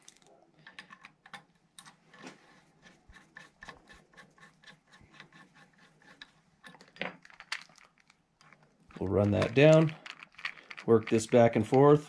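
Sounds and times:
small metal clicks: 6.0s - 12.0s.

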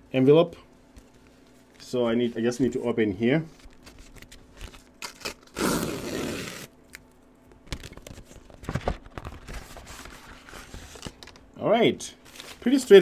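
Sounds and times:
paper rustling and crinkling: 3.5s - 5.5s, 7.7s - 11.4s, 12.2s - 13.0s
envelope tearing: 3.8s - 6.8s.

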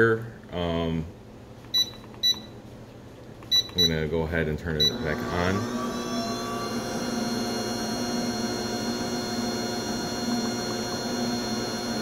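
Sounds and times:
mixer motor humming with whine: 4.7s - 12.0s.

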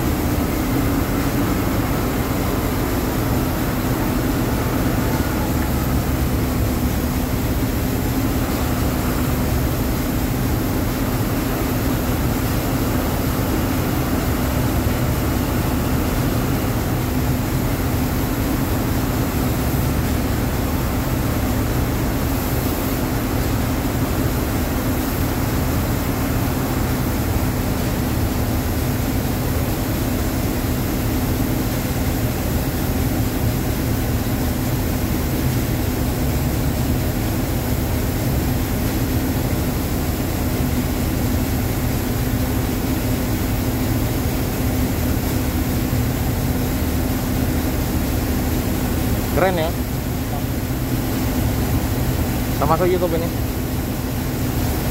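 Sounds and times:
diesel engine running: 0.0s - 30.6s.

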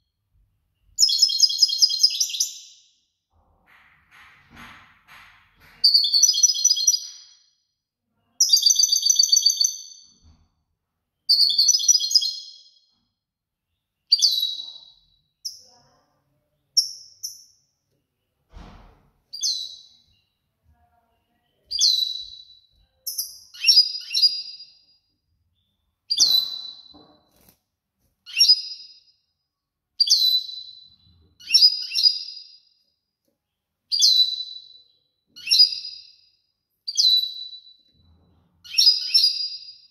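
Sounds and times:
finch chirping: 0.9s - 2.7s, 8.4s - 10.0s, 11.3s - 12.6s, 14.1s - 15.6s, 21.6s - 24.8s, 26.1s - 27.5s, 28.3s - 28.9s, 30.0s - 32.4s, 33.9s - 34.8s, 35.4s - 36.1s, 36.9s - 37.8s, 38.7s - 39.8s.

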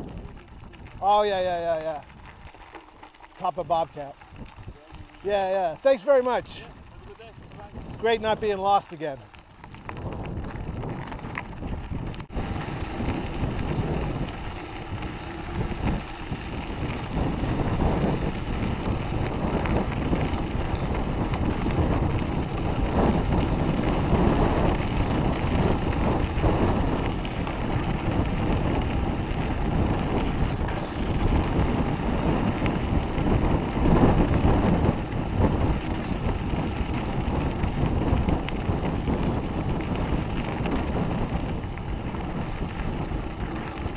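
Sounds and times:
tyres crunching over stones: 0.0s - 33.8s
bike rattling: 0.0s - 43.9s
wind buffeting microphone: 0.0s - 43.9s.

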